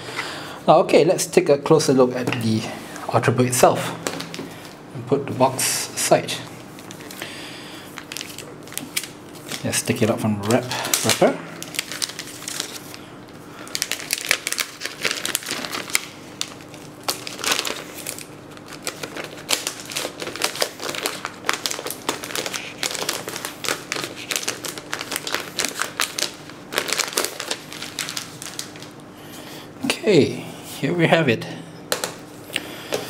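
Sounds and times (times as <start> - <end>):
plastic wrap crinkling: 4.0 - 4.8, 6.6 - 29.1.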